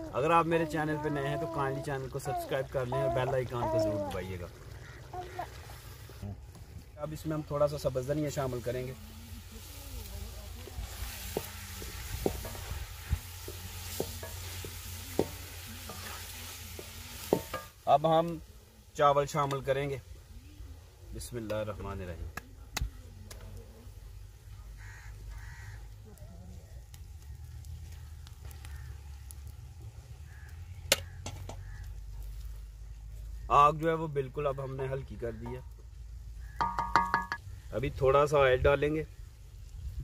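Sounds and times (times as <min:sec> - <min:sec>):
curry sizzling in pot: 0:00.0 - 0:22.2, 0:23.2 - 0:40.0
low rumble of fire: 0:04.3 - 0:36.6, 0:37.4 - 0:40.0
crow cawing: 0:04.8 - 0:05.6, 0:24.6 - 0:26.1, 0:28.5 - 0:29.2, 0:30.2 - 0:32.1
wooden spoon knocking pot: 0:36.6 - 0:37.4.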